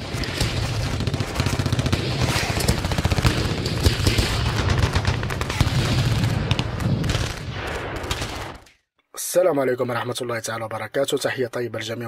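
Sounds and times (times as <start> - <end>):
machine-gun fire: 0.0 - 8.6.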